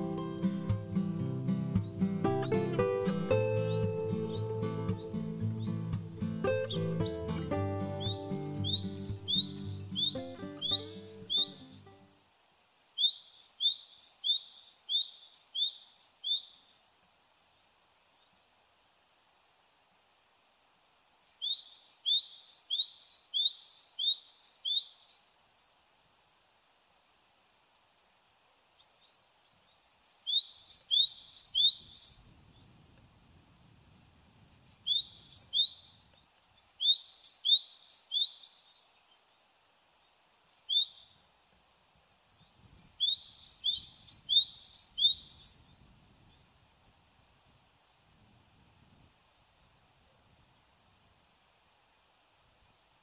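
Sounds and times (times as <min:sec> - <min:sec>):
bird singing two-note song: 0:00.0 - 0:12.1.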